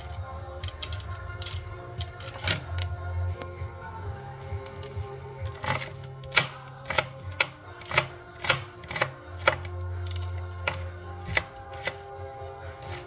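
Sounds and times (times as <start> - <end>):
background music: 0.0 - 13.0
knife chopping onion on board: 5.5 - 9.7, 10.6 - 12.1, 12.8 - 13.0.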